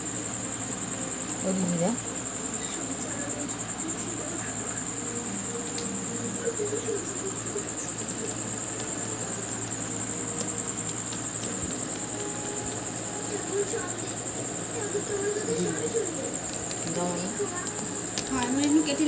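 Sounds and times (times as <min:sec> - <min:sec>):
cricket trilling: 0:00.0 - 0:19.0
faint clicks: 0:05.3 - 0:06.2, 0:08.0 - 0:13.0, 0:15.5 - 0:19.0.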